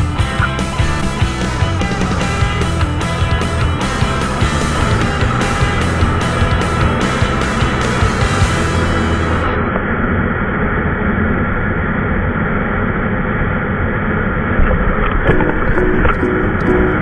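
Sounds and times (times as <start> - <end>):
music: 0.0 - 9.6, 15.3 - 17.0
motorcycle engine and wind rumble: 0.0 - 16.2.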